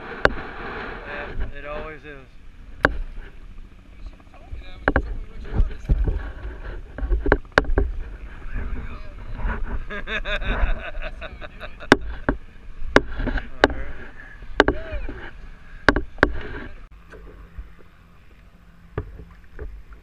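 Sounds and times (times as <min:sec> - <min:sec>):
sharp knocks: 0:02.8 - 0:03.1, 0:04.8 - 0:06.2, 0:06.9 - 0:08.0, 0:11.9 - 0:13.8, 0:14.6 - 0:15.2, 0:15.9 - 0:16.7
water splashing: 0:11.0 - 0:20.0.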